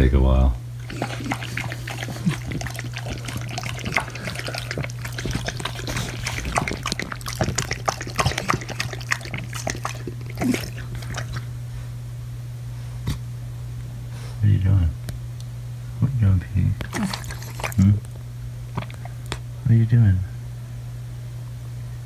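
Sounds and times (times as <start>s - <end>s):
steady low hum: 0.0s - 22.0s
dog lapping water from metal bowl: 0.8s - 11.5s, 16.8s - 17.9s.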